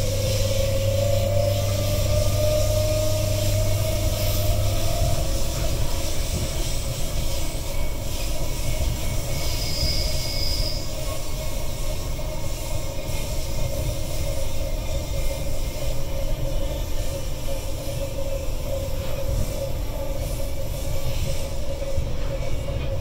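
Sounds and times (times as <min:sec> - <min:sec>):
train wheels rumbling on track: 0:00.0 - 0:23.0
wheel squeal: 0:08.1 - 0:11.3.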